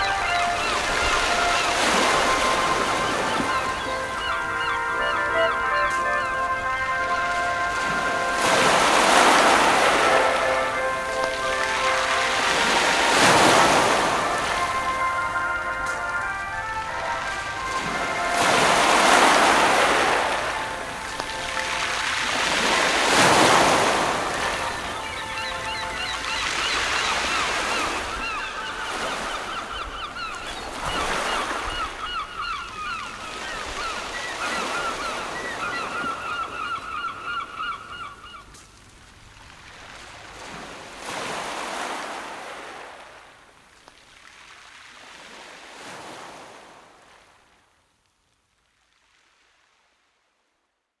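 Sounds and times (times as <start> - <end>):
gulls calling: 0.0 - 38.6
sea waves breaking: 0.0 - 47.4.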